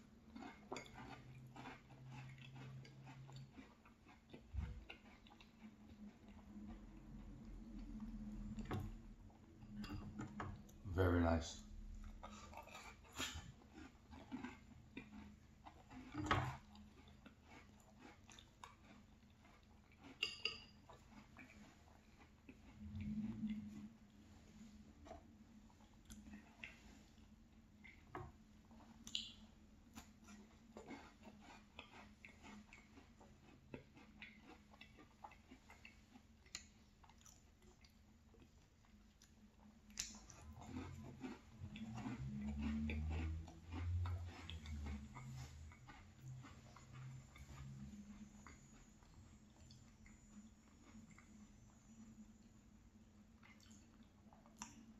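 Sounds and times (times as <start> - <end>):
faint chewing: 0.0 - 54.9
wet mouth clicks: 29.0 - 29.4, 39.9 - 47.7.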